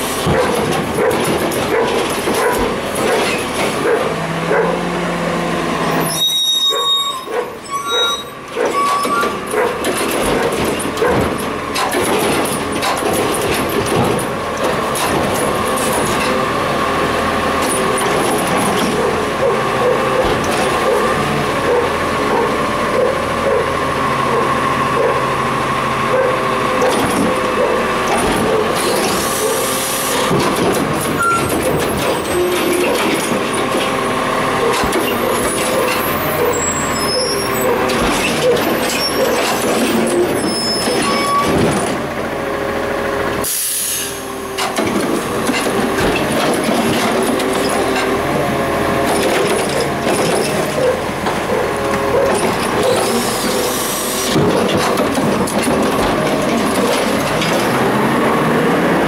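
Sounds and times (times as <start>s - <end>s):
garbage truck running: 0.0s - 59.0s
high brake squeaks: 6.0s - 9.6s, 31.1s - 33.0s, 34.9s - 41.6s
air-brake hisses: 43.4s - 44.2s.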